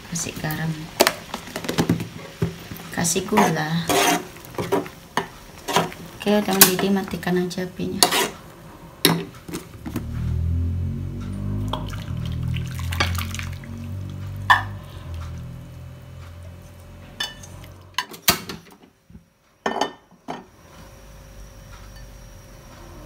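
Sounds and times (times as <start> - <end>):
curry pouring: 11.6 - 15.5.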